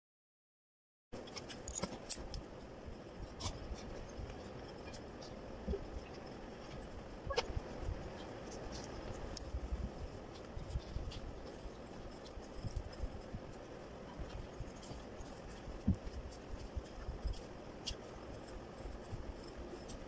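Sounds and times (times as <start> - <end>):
pencil scratching on paper: 6.1 - 20.0.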